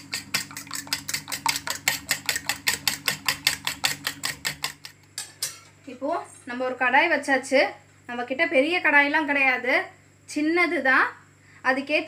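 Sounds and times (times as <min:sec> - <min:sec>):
whisk clicking against metal bowl: 0:00.0 - 0:05.6.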